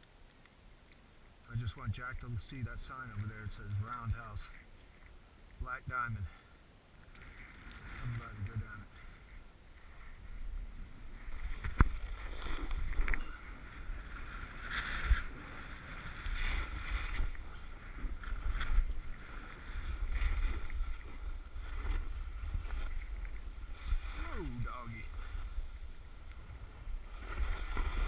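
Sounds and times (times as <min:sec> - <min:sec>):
snowboard scraping over snow: 0:09.8 - 0:28.0.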